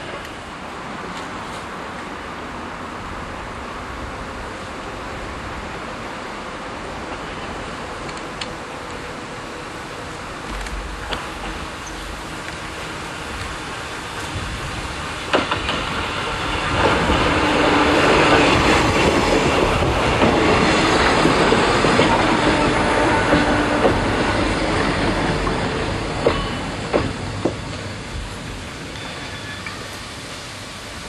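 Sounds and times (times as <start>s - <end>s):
train wheels running on rail: 0.0s - 31.0s
train wheels clacking: 10.4s - 30.4s.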